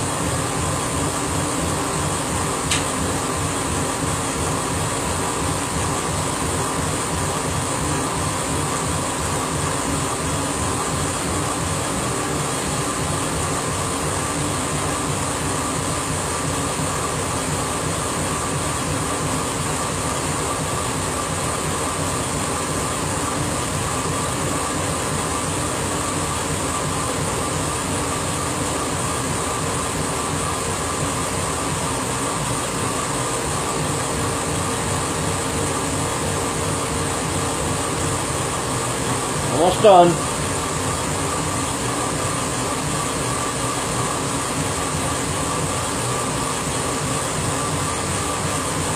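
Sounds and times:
constant hum tone: 0:00.0 - 0:16.8
laser engraver fans droning: 0:00.0 - 0:48.9.

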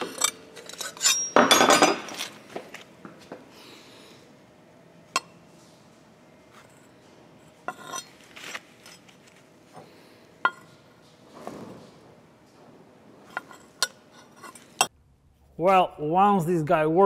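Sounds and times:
metal scraping and sliding: 0:00.0 - 0:02.4, 0:07.6 - 0:09.3, 0:13.2 - 0:14.9.

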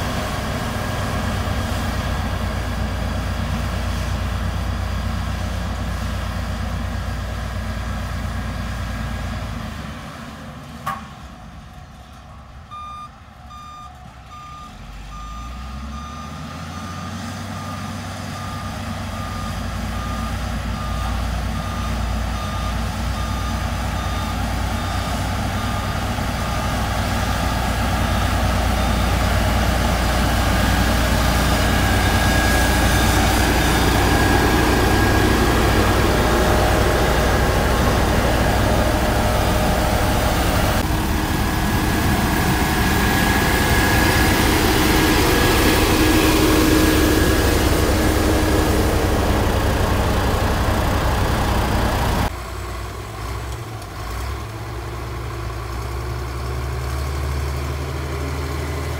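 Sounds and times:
road roller diesel engines rumbling: 0:00.0 - 0:58.9
reversing alarm beeping: 0:12.7 - 0:40.8.

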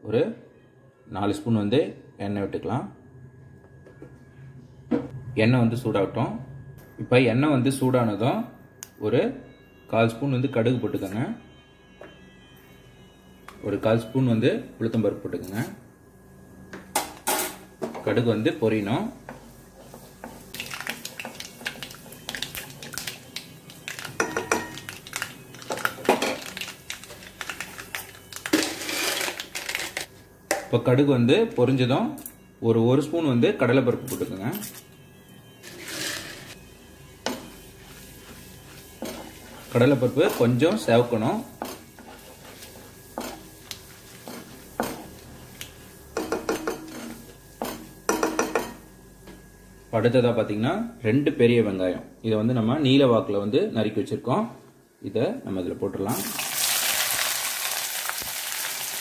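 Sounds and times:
oil sizzling: 0:18.3 - 0:30.1, 0:35.7 - 0:48.4, 0:56.1 - 0:59.0
mustard seeds popping in hot oil: 0:20.5 - 0:28.7
spoon scraping pan: 0:35.6 - 0:36.6, 0:37.2 - 0:47.8.

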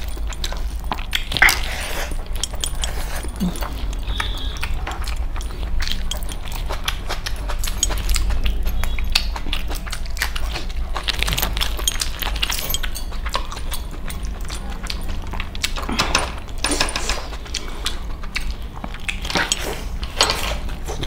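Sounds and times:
metal rings and bracelets clinking: 0:00.0 - 0:09.2, 0:10.2 - 0:15.4
wet chewing and lip smacking: 0:00.0 - 0:21.0.

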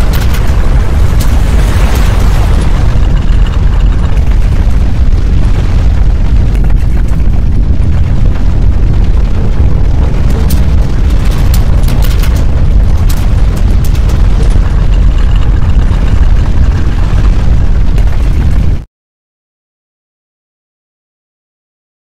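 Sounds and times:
sharp cracks and rattles: 0:00.0 - 0:18.8
deep earthquake rumble: 0:00.0 - 0:18.9.

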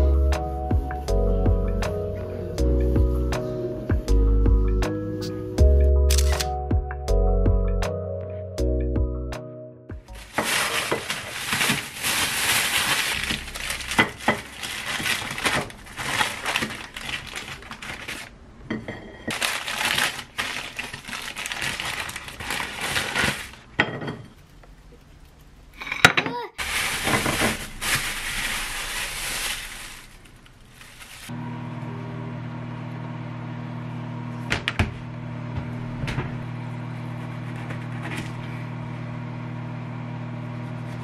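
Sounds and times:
plastic bag crinkling: 0:10.1 - 0:18.4, 0:19.3 - 0:23.7, 0:26.6 - 0:31.4.

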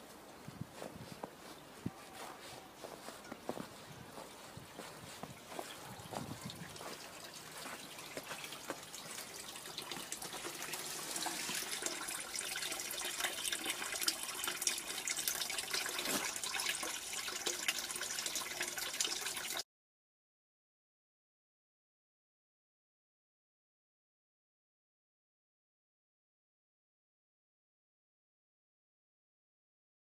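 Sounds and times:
water pouring into basin: 0:06.5 - 0:19.6.

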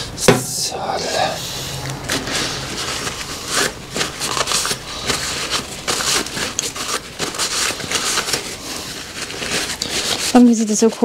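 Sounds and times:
hands handling small parts: 0:02.0 - 0:10.4.

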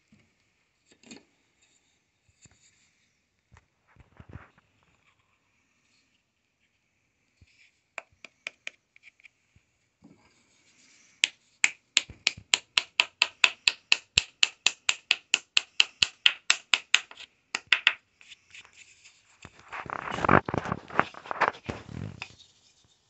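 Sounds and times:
rubbing and handling noise: 0:01.6 - 0:23.0
tool tapping wooden piece: 0:11.2 - 0:18.0.

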